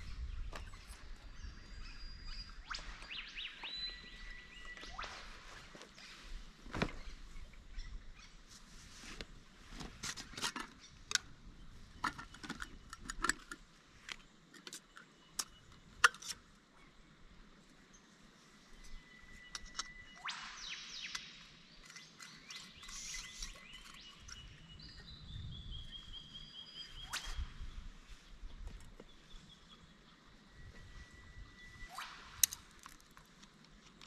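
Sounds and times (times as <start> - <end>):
birds calling: 0.0 - 8.4, 18.8 - 32.7.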